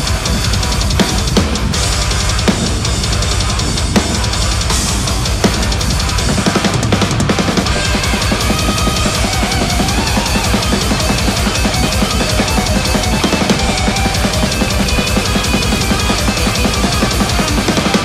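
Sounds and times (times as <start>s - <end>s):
distorted heavy metal band track: 0.0s - 18.0s
drum kit played hard: 0.0s - 18.0s.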